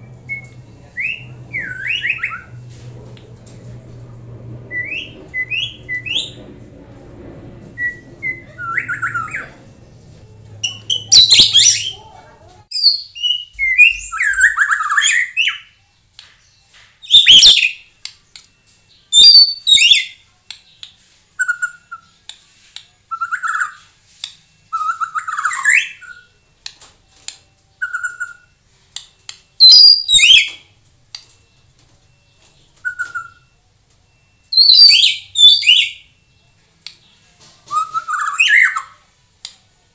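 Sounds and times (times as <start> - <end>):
faint low hum: 0.0 - 12.7
bird singing whistled phrases: 0.1 - 2.6, 7.8 - 9.5, 10.6 - 12.0, 12.7 - 15.9, 19.0 - 20.2, 29.6 - 30.6, 34.5 - 36.1, 37.7 - 39.0.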